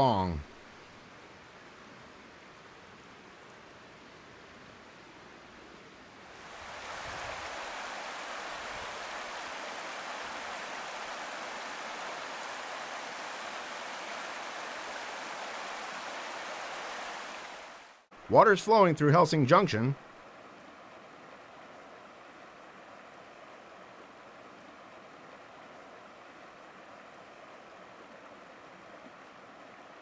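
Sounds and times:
faint outdoor background: 0:00.0 - 0:30.0
floodwater rushing across road: 0:06.2 - 0:19.7.

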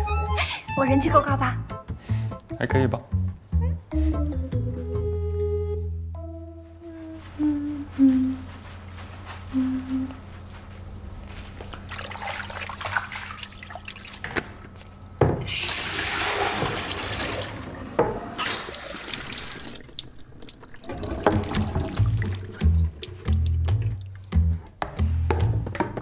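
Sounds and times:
water dripping from spout: 0:19.2 - 0:24.5.

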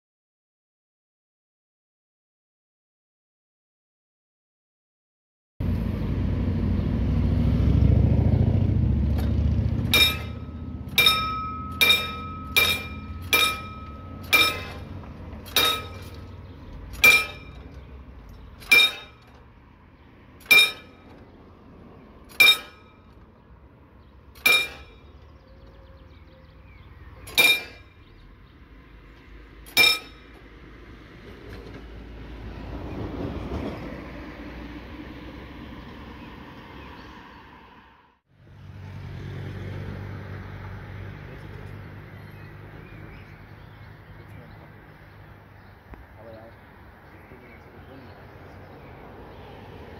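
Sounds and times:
level crossing bell ringing: 0:09.9 - 0:16.2.

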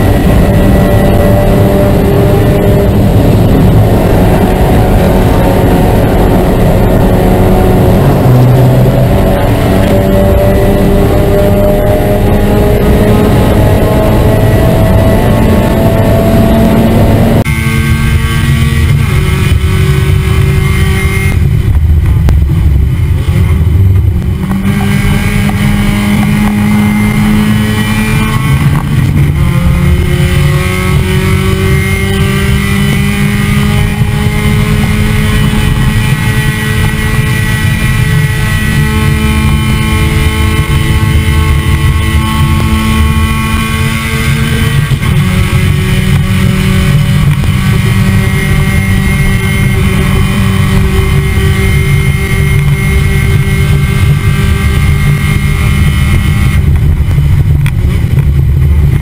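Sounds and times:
race car engine at high revs: 0:00.0 - 0:59.0.

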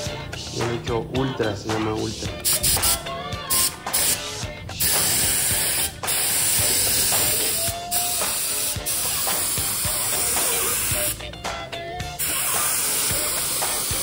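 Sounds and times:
spray gun hissing: 0:02.4 - 0:11.2, 0:12.2 - 0:14.0.

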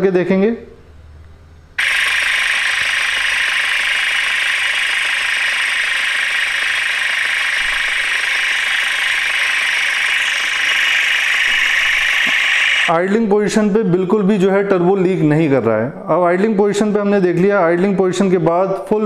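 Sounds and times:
car engine idling: 0:01.8 - 0:12.9
air hissing into turbo: 0:01.8 - 0:13.0.

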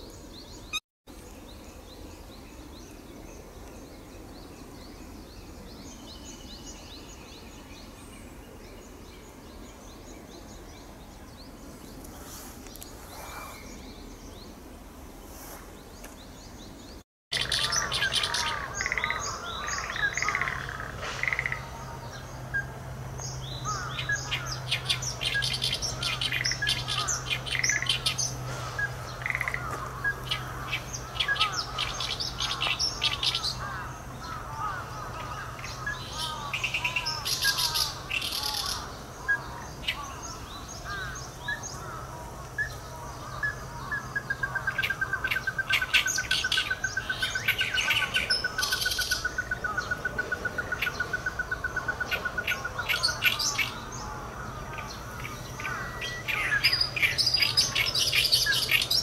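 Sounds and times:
birds chattering and chirping: 0:00.0 - 0:59.0
crake calling: 0:17.3 - 0:22.8, 0:23.5 - 0:59.0.

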